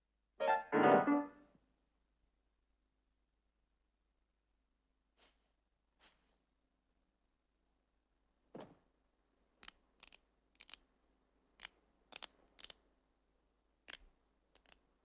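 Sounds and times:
cartoon knuckle cracks: 9.6 - 10.8, 11.6 - 12.8, 13.9 - 14.8.

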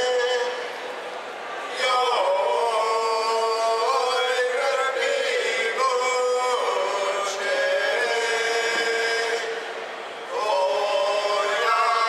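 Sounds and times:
group of voices singing unaccompanied: 1.7 - 12.0.

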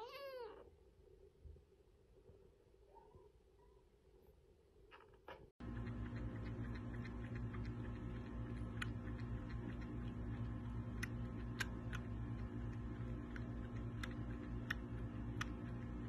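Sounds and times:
kitten suckling clicks: 5.6 - 16.0
steady low hum: 5.6 - 16.0.

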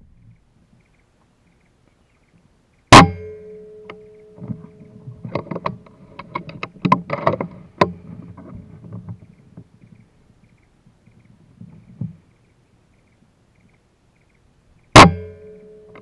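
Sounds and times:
faint ringing tone: 1.5 - 6.1, 15.1 - 16.0
clicks and rustles: 3.9 - 12.5.

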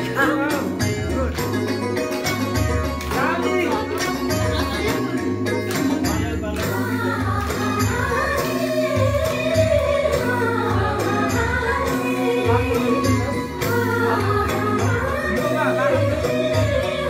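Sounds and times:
amplified backing music with bass: 0.0 - 17.0
woman singing into microphone: 6.6 - 17.0.

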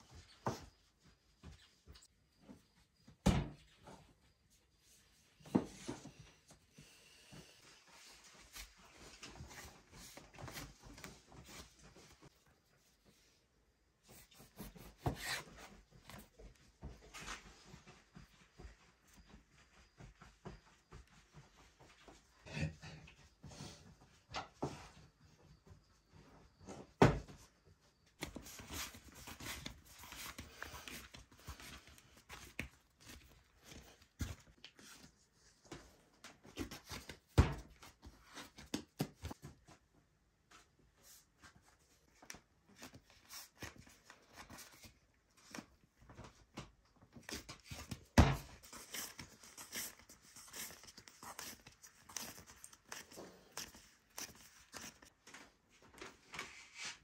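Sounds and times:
hands working dough: 14.0 - 19.2, 23.1 - 57.0.

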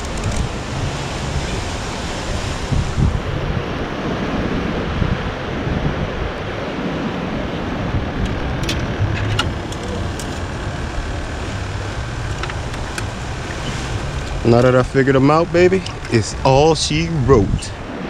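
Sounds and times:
surf: 0.0 - 18.0
wind: 0.0 - 18.0
low rumble: 7.1 - 18.0.

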